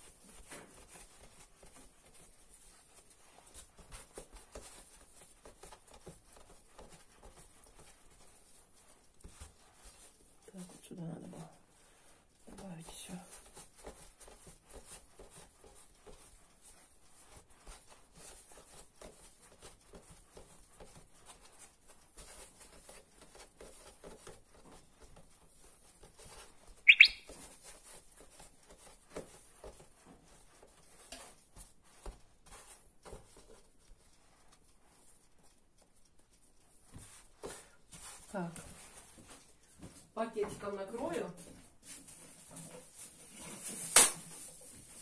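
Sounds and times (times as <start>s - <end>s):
hands rolling dough on a board: 0.0s - 45.0s
short high-pitched chirp: 26.9s - 27.3s.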